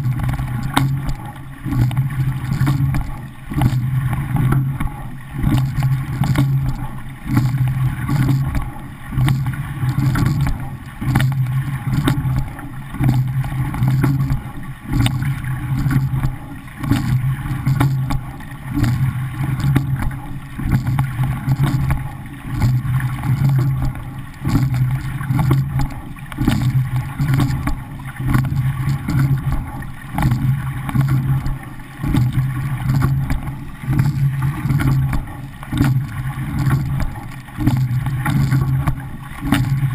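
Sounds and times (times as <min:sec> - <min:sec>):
water rushing along boat hull: 0:00.0 - 0:39.9.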